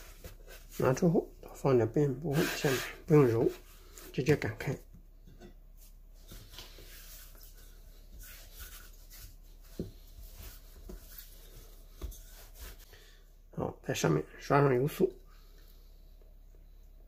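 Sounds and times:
rolling pin rubbing on dough: 1.8 - 4.5, 5.8 - 12.9.

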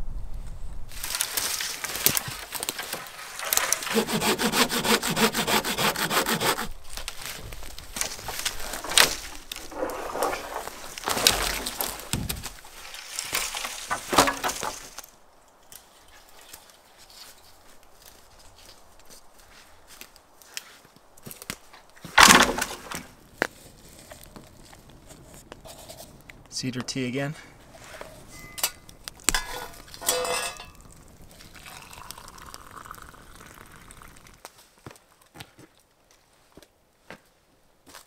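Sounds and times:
branches cracking: 0.9 - 4.7, 5.8 - 26.6, 27.2 - 35.8
dry wood rubbing and rasping: 3.4 - 6.8.

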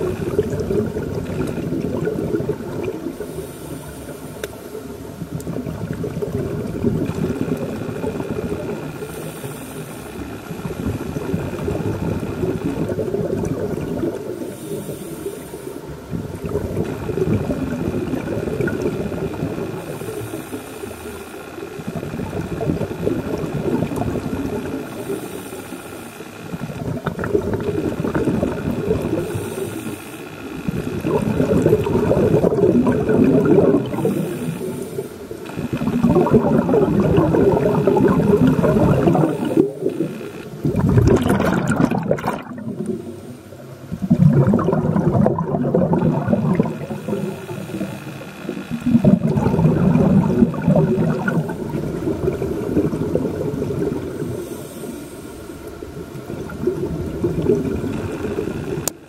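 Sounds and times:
exhaled bubbles rumbling: 0.0 - 3.5, 4.8 - 9.3, 10.5 - 15.0, 15.9 - 20.2, 21.8 - 25.1, 26.5 - 29.6, 30.6 - 54.7, 55.7 - 59.0
scuba regulator inhale hiss: 3.1 - 5.0, 8.9 - 10.9, 14.3 - 16.1, 19.7 - 21.8, 24.6 - 26.6, 29.1 - 31.0, 33.6 - 36.0, 37.8 - 40.5, 42.7 - 43.8, 46.7 - 48.9, 53.7 - 56.0.

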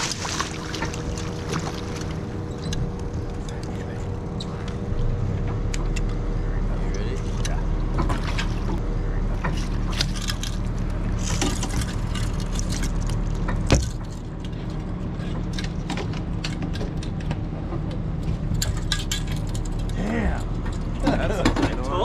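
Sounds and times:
boat motor idling: 0.0 - 22.0.

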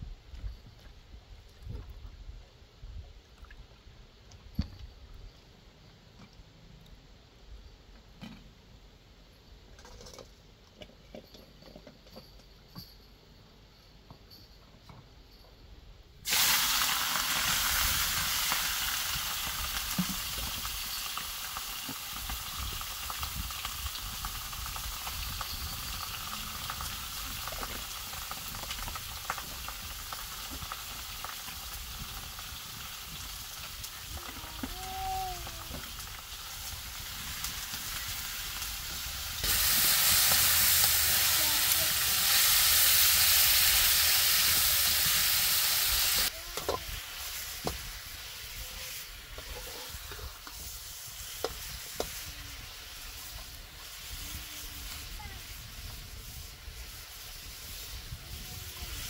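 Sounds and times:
meat sizzling in hot oil: 16.3 - 59.0.

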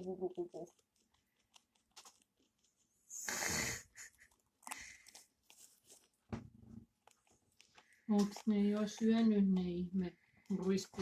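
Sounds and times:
guinea pig rustling in bedding: 4.6 - 11.0.

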